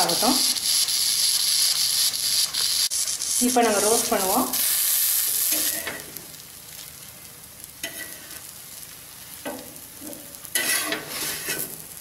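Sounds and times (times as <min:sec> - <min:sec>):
dosa sizzling on pan: 0:00.0 - 0:12.0
metal spatula scraping pan: 0:07.8 - 0:08.4, 0:10.5 - 0:11.8.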